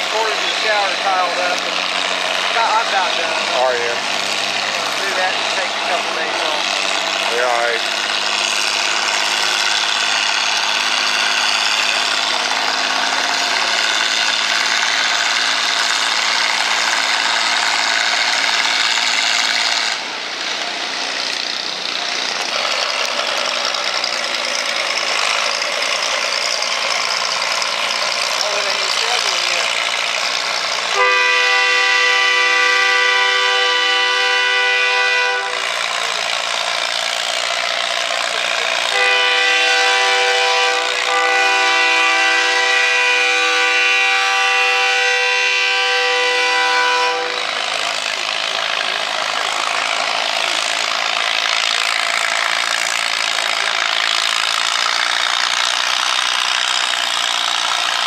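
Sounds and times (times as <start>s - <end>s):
tractor engine under load: 0.0s - 58.0s
multi-note horn blasts: 30.9s - 35.8s, 38.9s - 47.7s.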